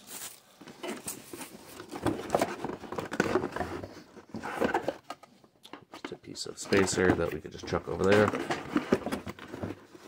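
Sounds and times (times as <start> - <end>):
cardboard scraping and rustling: 0.0 - 5.0.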